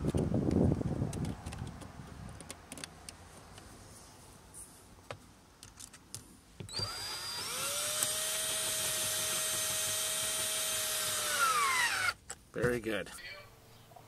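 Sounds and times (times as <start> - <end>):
drill motor spinning: 6.7 - 12.2.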